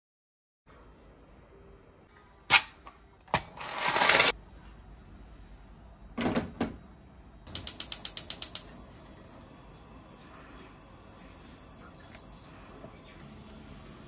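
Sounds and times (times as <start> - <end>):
quick clicks: 7.5 - 8.7.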